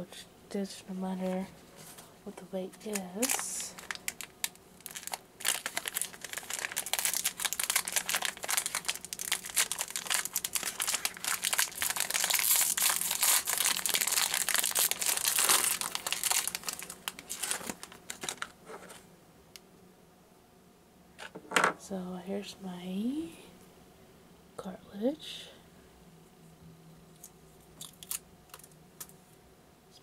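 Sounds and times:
plastic packaging crinkling: 0:02.7 - 0:19.0, 0:27.2 - 0:29.2.

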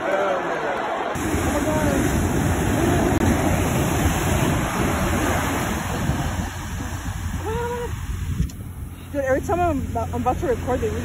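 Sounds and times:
ocean surf breaking on beach: 0:01.2 - 0:08.5
wind rumbling on microphone: 0:01.2 - 0:11.0.

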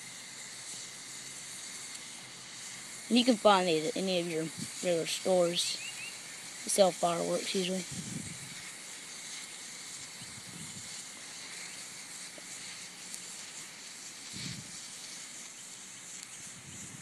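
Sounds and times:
fireworks hissing: 0:00.0 - 0:17.0
soft ticks: 0:16.2 - 0:16.4.

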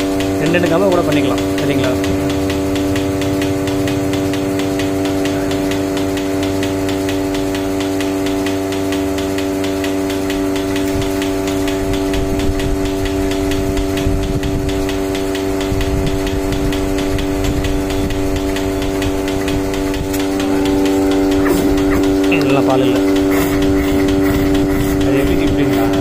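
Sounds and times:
milking machine pump humming: 0:00.0 - 0:26.0
rapid even ticking: 0:00.0 - 0:26.0.

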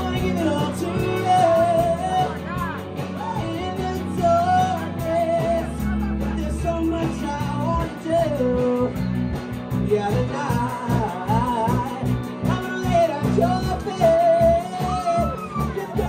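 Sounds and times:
bass guitar: 0:00.0 - 0:16.0
drum kit beat: 0:00.0 - 0:16.0
electric guitar: 0:00.0 - 0:16.0
lead singer singing: 0:00.0 - 0:16.0.

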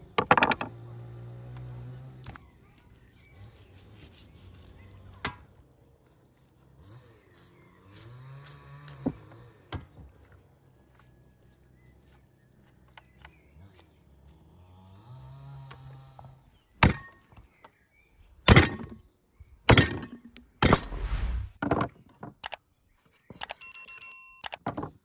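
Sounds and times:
knife slicing raw meat: 0:02.3 - 0:09.0.

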